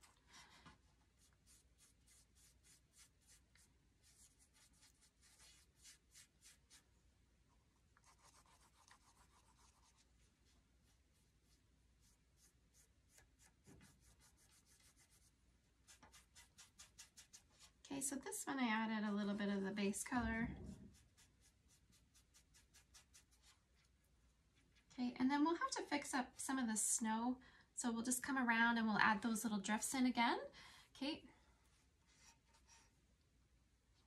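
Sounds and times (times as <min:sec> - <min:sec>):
paintbrush strokes on wood: 0:00.0 - 0:06.9, 0:07.5 - 0:17.8, 0:20.6 - 0:23.9.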